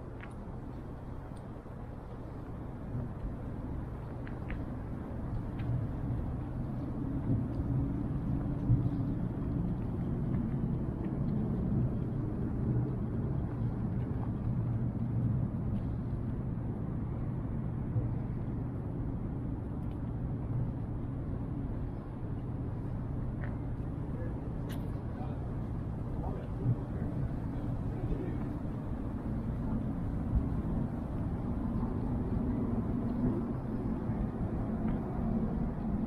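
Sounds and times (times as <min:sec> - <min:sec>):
low city rumble: 0:00.0 - 0:36.0
faint ticks: 0:04.0 - 0:15.9.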